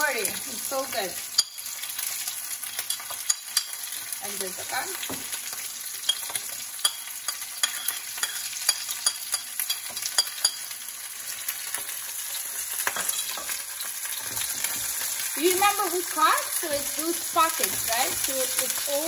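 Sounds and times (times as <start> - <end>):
steaks sizzling in a frying pan: 0.0 - 19.0
metal spoon scraping a pan: 1.2 - 4.7, 5.9 - 15.3.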